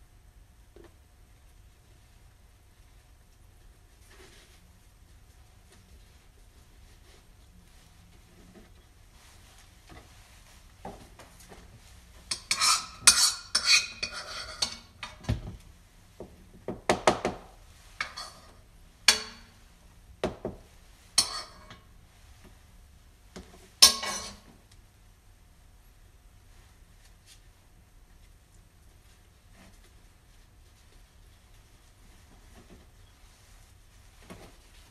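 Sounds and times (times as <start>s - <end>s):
metal utensils and dishes clinking: 12.3s - 15.4s, 18.0s - 19.6s, 21.2s - 21.9s, 23.8s - 24.5s.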